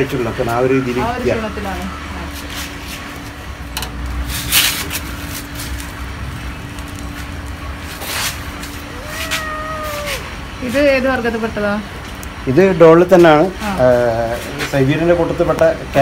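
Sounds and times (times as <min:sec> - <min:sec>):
steady low hum: 0:00.0 - 0:16.0
cat meowing: 0:08.9 - 0:10.3.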